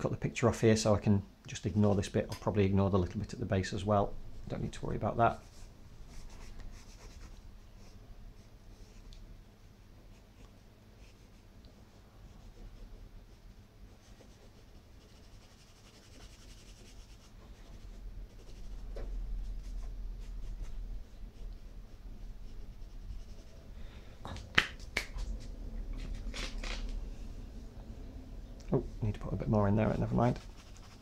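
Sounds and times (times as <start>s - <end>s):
fingertips rubbing on paper: 5.3s - 8.0s, 12.3s - 23.7s, 29.8s - 31.0s.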